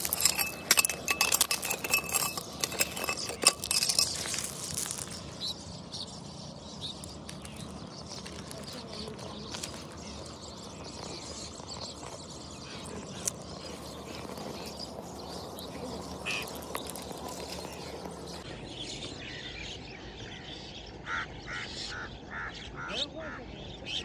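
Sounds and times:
pebbles clicking: 0.0 - 5.3, 7.0 - 18.4
birds calling: 0.0 - 24.0
steady outdoor hiss: 2.4 - 24.0.

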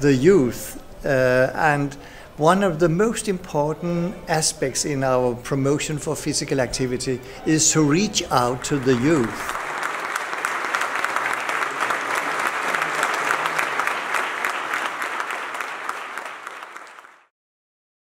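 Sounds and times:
audience applause: 8.2 - 17.3.

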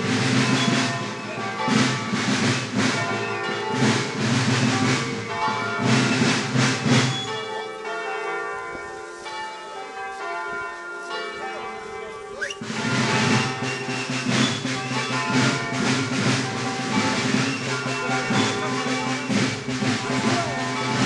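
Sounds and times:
church bells ringing: 0.0 - 21.0.

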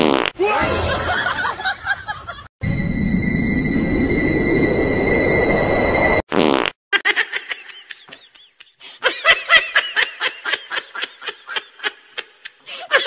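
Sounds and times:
fart-like sound: 0.0 - 0.3, 6.3 - 6.8.

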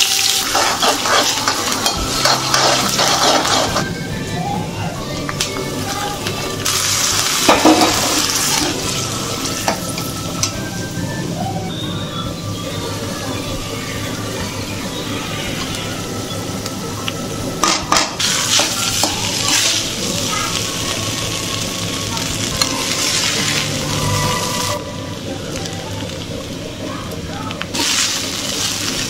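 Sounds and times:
vegetables sizzling in a pan: 0.0 - 3.9, 5.2 - 29.0
rice stir-frying: 0.0 - 29.0
spatula stirring and scraping: 0.1 - 3.9.

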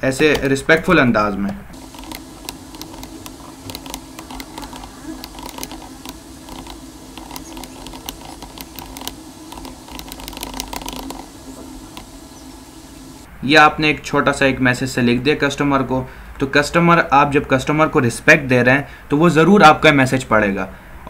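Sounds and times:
keyboard key clicks: 1.8 - 13.1
low hum: 1.8 - 13.3.

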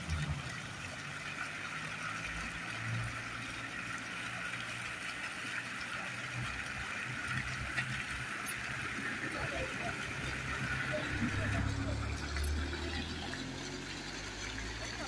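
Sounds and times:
fountain water jets splashing: 0.0 - 15.0
low hum: 8.6 - 14.1.

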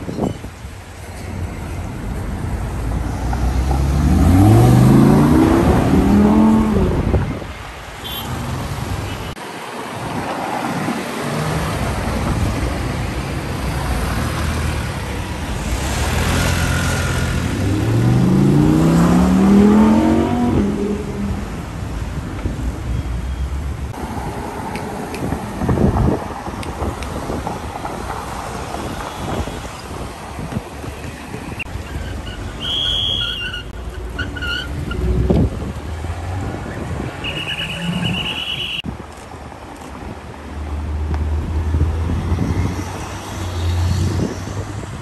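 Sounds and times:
city traffic noise: 0.0 - 45.0
car engine accelerating hard: 3.2 - 7.1, 15.8 - 21.5.

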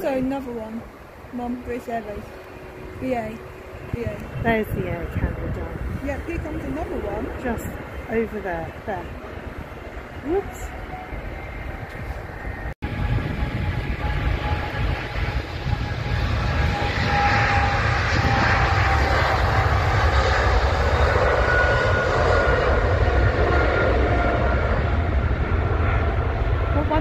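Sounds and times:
jet engines rumbling with whine: 0.0 - 27.0.

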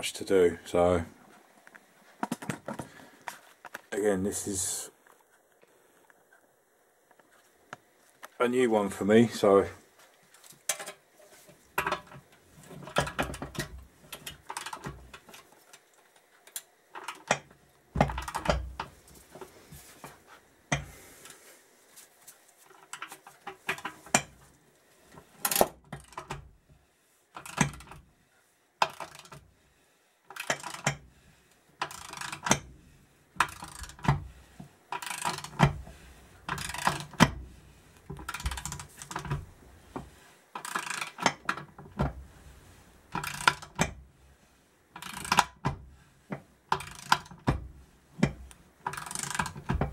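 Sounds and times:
ratcheting spanner clicking: 28.8 - 29.4, 30.3 - 31.0, 31.8 - 32.6, 33.4 - 34.2, 34.9 - 35.7, 36.5 - 37.3, 40.6 - 41.4, 43.2 - 43.9, 45.0 - 45.6, 46.7 - 47.5, 48.8 - 49.9.

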